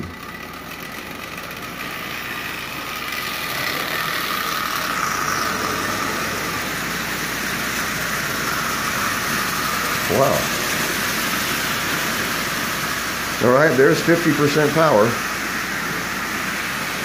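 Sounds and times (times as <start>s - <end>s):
toy train rumbling on track: 0.0s - 17.0s.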